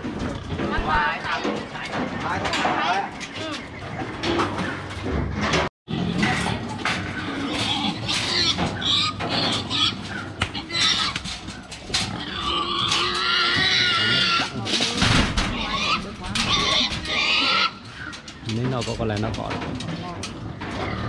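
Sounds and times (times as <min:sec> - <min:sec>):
metal crate knocking and rattling: 0:00.0 - 0:21.0
pigs squealing: 0:05.9 - 0:18.5, 0:20.4 - 0:21.0.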